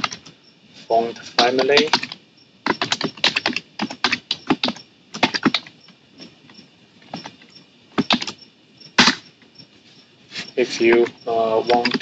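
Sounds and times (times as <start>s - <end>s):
computer keyboard typing: 0.0s - 0.3s, 1.4s - 5.8s, 8.0s - 8.4s, 10.9s - 12.0s.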